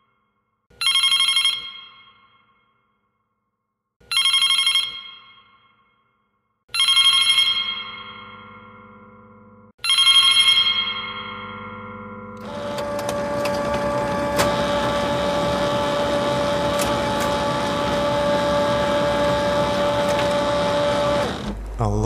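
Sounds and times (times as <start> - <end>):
telephone bell ringing: 0.8 - 2.3, 4.1 - 5.7, 6.7 - 21.2.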